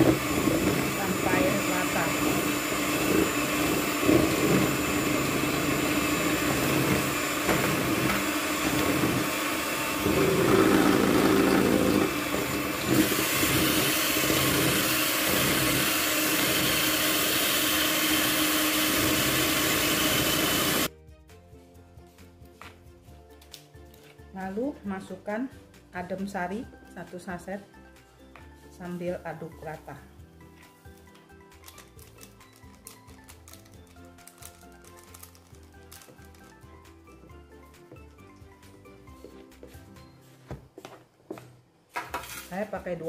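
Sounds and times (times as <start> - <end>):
electric mixer motor running: 0.0 - 20.9.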